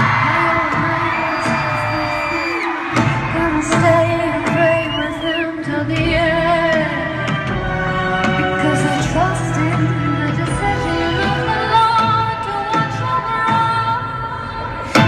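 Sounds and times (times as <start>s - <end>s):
live pop band music: 0.0s - 15.0s
woman singing: 0.0s - 15.0s.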